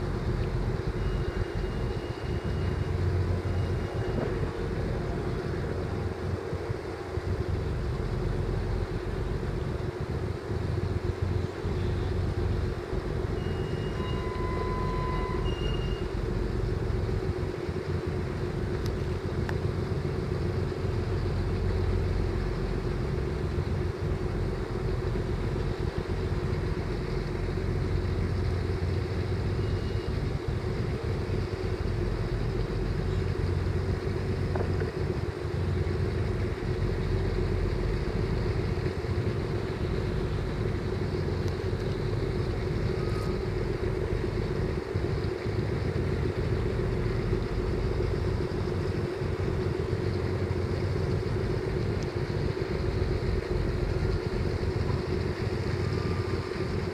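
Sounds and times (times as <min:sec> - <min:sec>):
ship engines droning: 0:00.0 - 0:56.9
brief high tones: 0:13.4 - 0:16.1.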